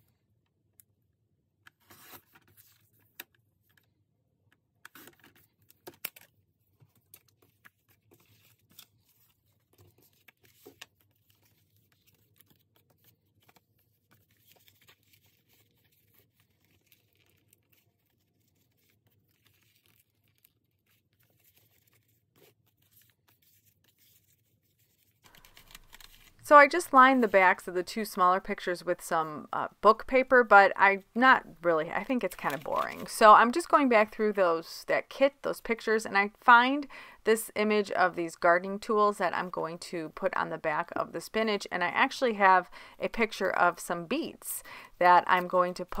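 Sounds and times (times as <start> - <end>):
paper rustling and sliding: 7.1 - 26.4, 32.3 - 33.1.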